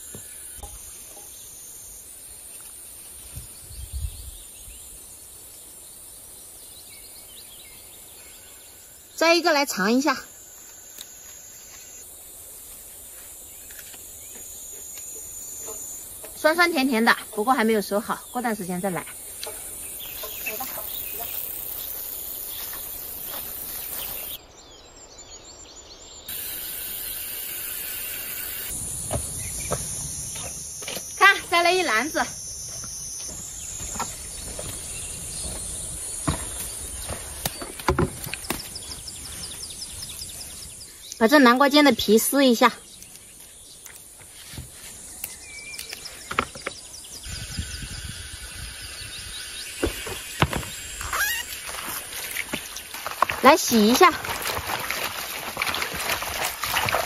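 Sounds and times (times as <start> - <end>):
high insect drone: 0.0 - 3.7, 4.6 - 24.5, 26.2 - 54.8
rustling of leafy plants: 7.0 - 24.4, 26.3 - 47.6, 49.1 - 57.0
faint bird calls: 45.4 - 51.8
bird whistled call: 50.9 - 51.5.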